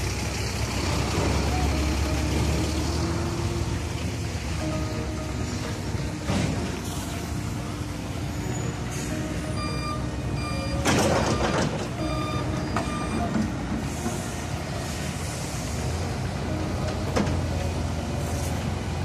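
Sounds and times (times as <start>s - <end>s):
diesel machinery rumbling: 0.0s - 19.0s
backup alarm beeping: 9.2s - 13.4s.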